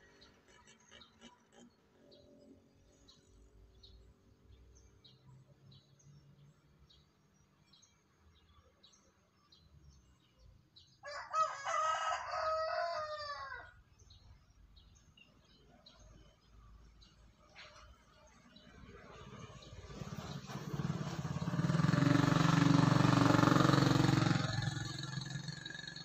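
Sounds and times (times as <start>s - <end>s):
rooster crowing: 11.0s - 13.8s.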